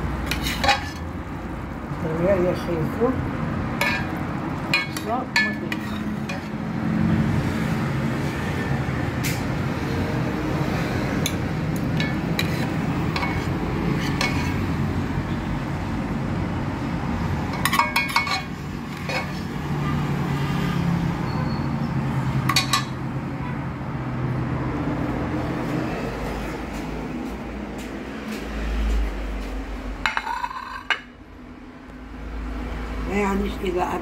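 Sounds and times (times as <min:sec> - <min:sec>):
metal ladle clinking on pot: 0:03.8 - 0:06.5, 0:11.2 - 0:14.6, 0:17.5 - 0:19.5, 0:22.5 - 0:23.0, 0:30.0 - 0:31.1.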